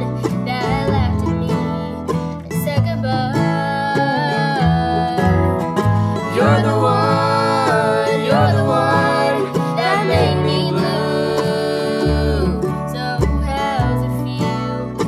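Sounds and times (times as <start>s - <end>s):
acoustic string band: 0.0s - 15.0s
voices singing in harmony: 3.9s - 14.1s.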